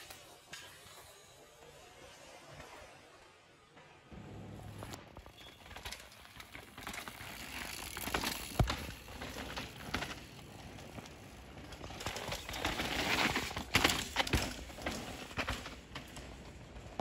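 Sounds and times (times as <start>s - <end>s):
bike tyre noise on dirt: 0.0s - 17.0s
bike rattling and knocking: 5.2s - 17.0s.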